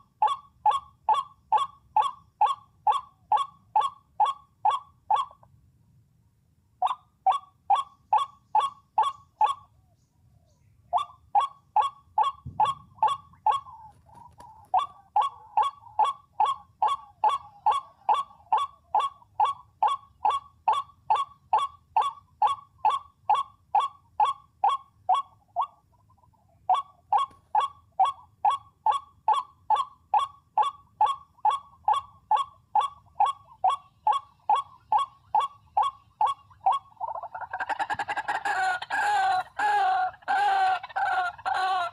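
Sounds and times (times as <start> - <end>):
waterhen harsh call: 31.0 - 41.9.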